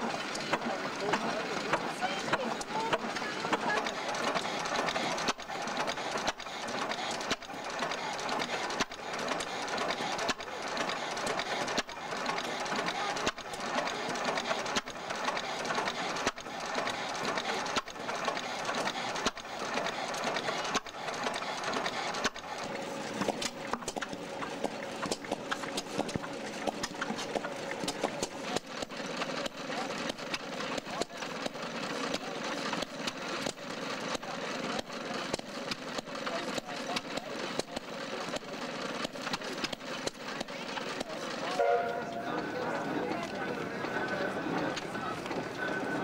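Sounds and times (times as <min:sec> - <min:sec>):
stationary engine clattering: 0:00.0 - 0:46.0.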